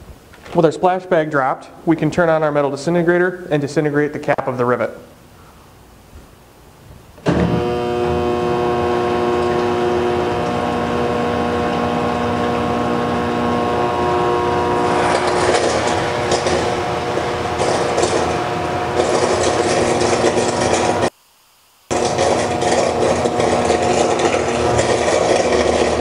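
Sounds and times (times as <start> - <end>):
crackling electrical buzz: 5.2 - 26.0
machine humming with steady tones: 5.2 - 26.0.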